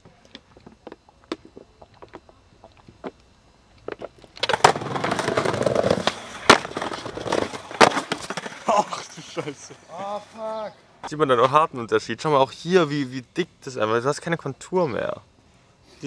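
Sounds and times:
skateboard grinding on concrete: 3.9s - 10.7s.

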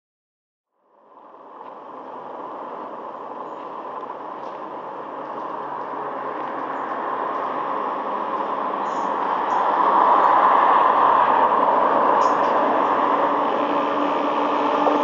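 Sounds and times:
freight train wheels running: 1.3s - 15.0s.

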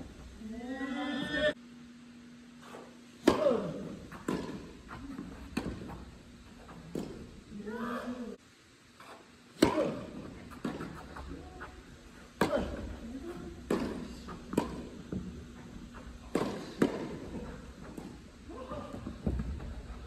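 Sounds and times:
tennis ball hits echoing: 3.2s - 7.4s, 9.6s - 11.3s, 12.4s - 15.5s, 16.1s - 18.3s.

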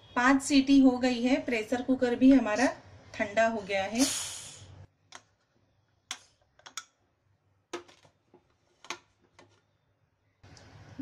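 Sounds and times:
brief hiss: 4.0s - 4.7s.

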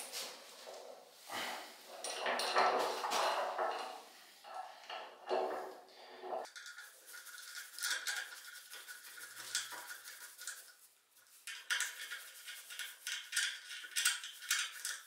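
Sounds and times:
small metallic clicks and scrapes: 6.4s - 10.6s, 11.4s - 15.0s.

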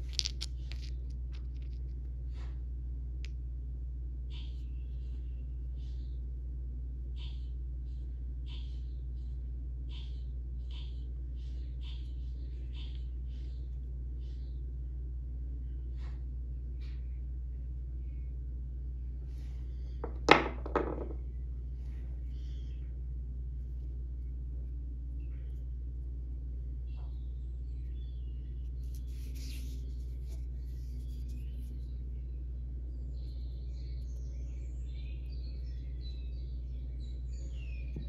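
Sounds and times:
low hum: 0.0s - 38.0s.

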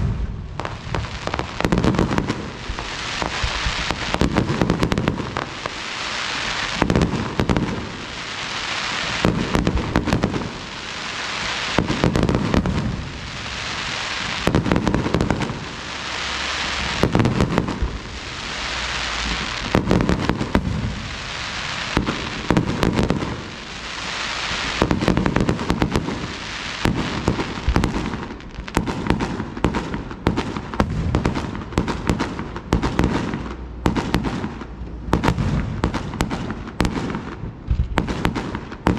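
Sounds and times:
fireworks crackling hiss: 0.0s - 38.9s
firework shells bursting: 24.6s - 38.9s.

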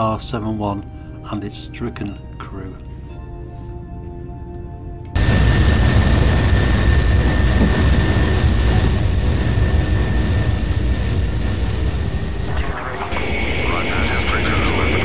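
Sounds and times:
jet engines roaring with whine: 5.2s - 15.0s.

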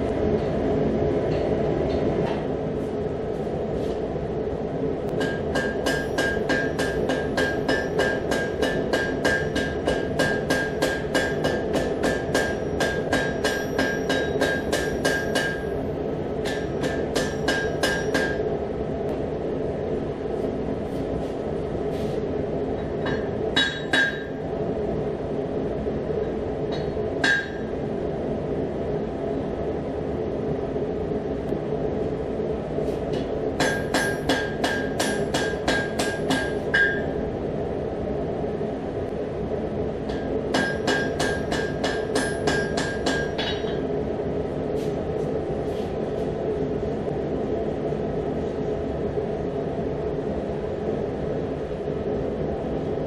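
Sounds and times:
hammer striking metal on anvil: 5.1s - 15.8s, 16.4s - 18.5s, 23.0s - 24.4s, 26.7s - 27.8s, 33.1s - 37.2s, 40.1s - 43.8s.

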